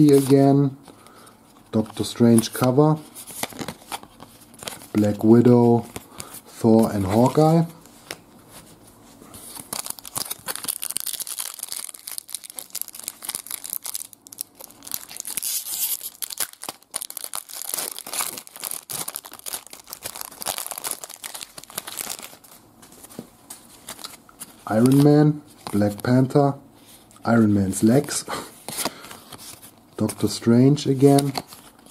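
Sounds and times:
foil pack crinkling and tearing: 0:09.4 - 0:23.1.

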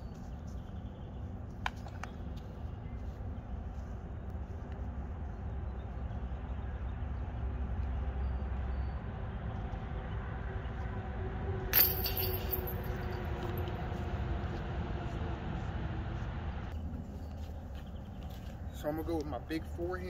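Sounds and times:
disc striking basket chains: 0:11.7 - 0:13.8.

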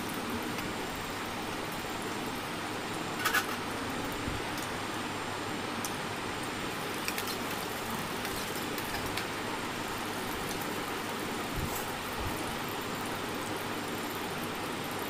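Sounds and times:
onion sizzling in hot oil: 0:06.7 - 0:15.0.

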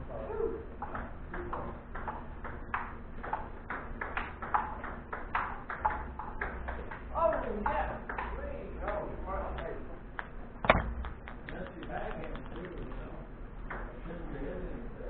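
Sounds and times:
table tennis balls clicking: 0:00.7 - 0:14.0.

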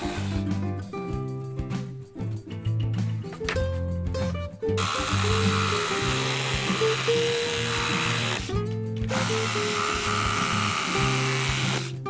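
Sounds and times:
background music: 0:00.0 - 0:12.0
reciprocating saw cutting wood: 0:04.8 - 0:12.0.

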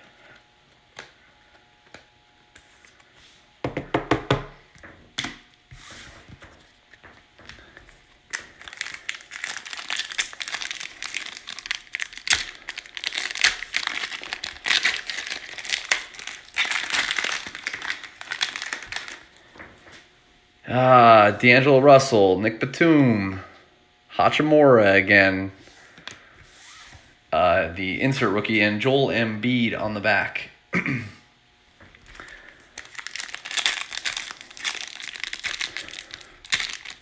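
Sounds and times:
plastic wrapper rustling: 0:07.6 - 0:19.5, 0:31.9 - 0:37.0
foil wrapper tearing and crinkling: 0:08.3 - 0:19.4, 0:32.1 - 0:37.0.

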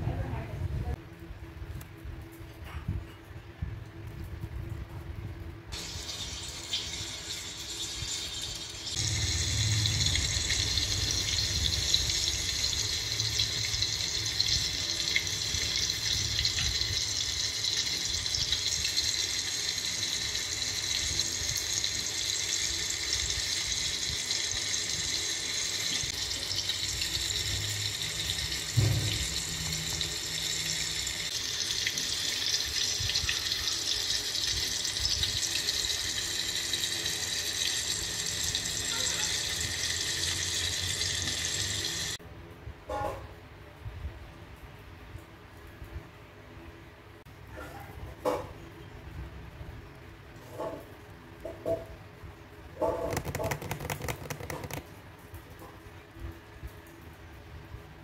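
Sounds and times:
low thump: 0:28.8 - 0:29.3.

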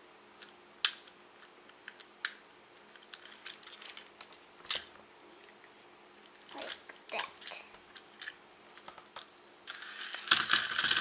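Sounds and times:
plastic toy legs clicking: 0:01.8 - 0:04.1, 0:06.5 - 0:08.9, 0:09.7 - 0:11.0.

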